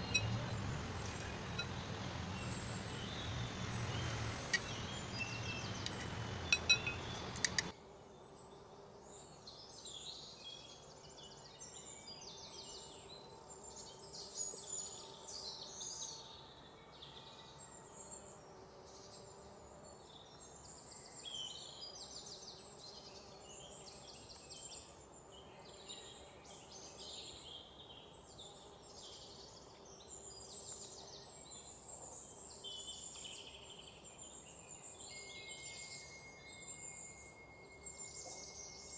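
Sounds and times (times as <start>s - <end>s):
small birds chirping: 0.0s - 7.8s.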